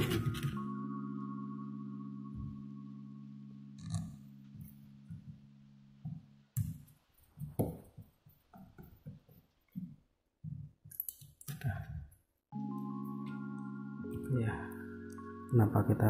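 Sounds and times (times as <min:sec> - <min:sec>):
background music sustained tones: 0:00.0 - 0:06.6, 0:12.5 - 0:16.0.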